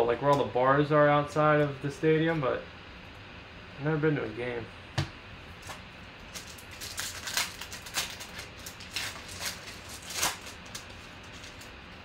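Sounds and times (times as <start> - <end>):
foil wrapper crinkling and tearing: 5.6 - 11.8.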